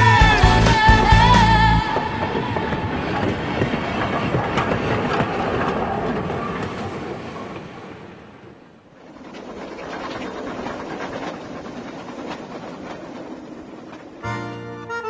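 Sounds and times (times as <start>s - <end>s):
background music: 0.0s - 2.2s, 14.2s - 15.0s
train running past: 0.0s - 9.4s, 11.0s - 15.0s
wheels clicking over rails: 0.0s - 15.0s.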